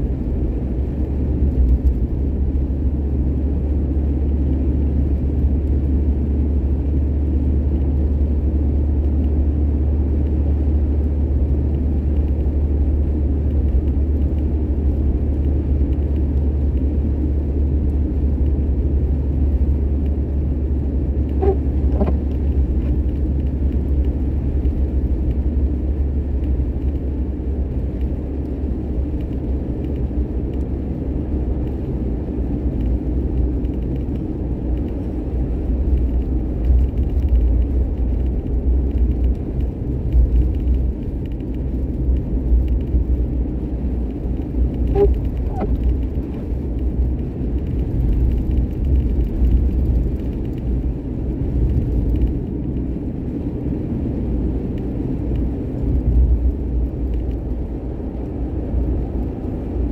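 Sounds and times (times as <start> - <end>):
car road and engine rumble: 0.0 - 59.9
short faint tones: 44.9 - 45.8.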